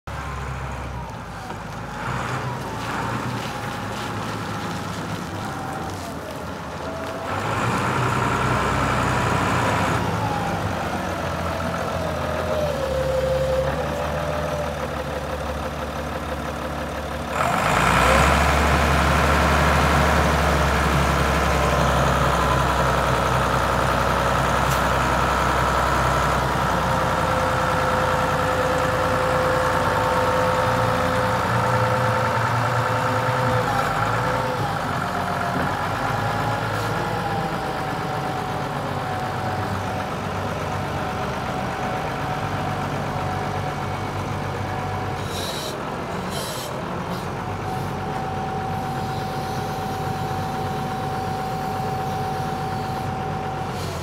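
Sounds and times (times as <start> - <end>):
forklift diesel engine running: 0.1 - 54.0.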